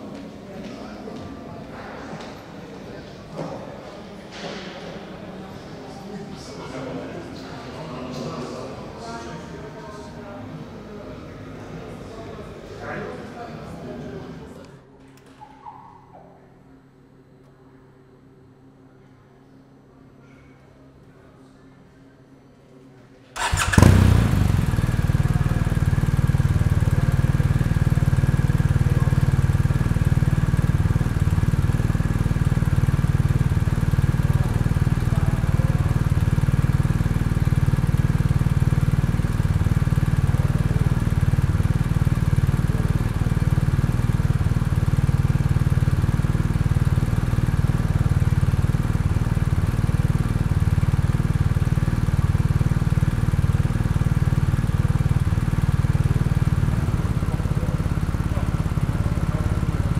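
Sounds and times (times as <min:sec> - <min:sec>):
motorcycle engine starting and idling: 0:23.4 - 0:59.9.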